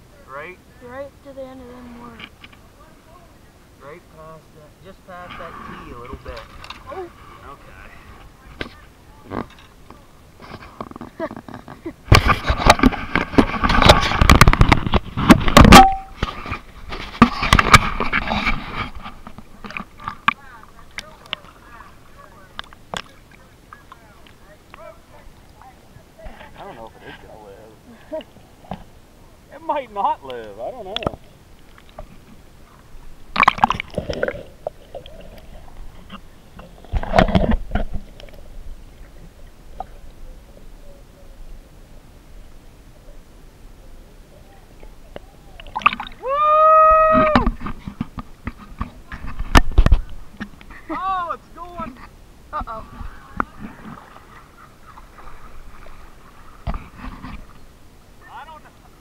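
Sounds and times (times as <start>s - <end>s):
water sloshing and gurgling: 5.2s - 29.4s, 30.3s - 41.3s, 44.7s - 46.3s, 51.6s - 59.0s.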